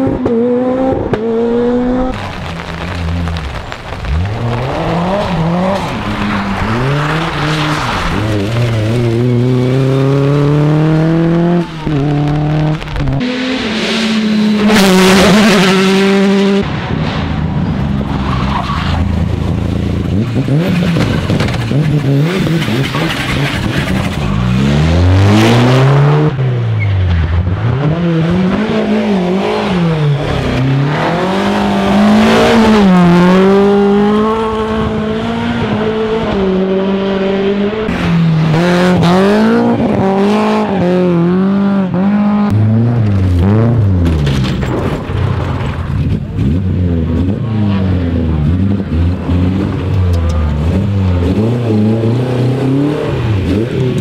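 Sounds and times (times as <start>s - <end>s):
rally car engines revving: 0.0s - 54.0s
tyres skidding on gravel: 2.1s - 10.4s.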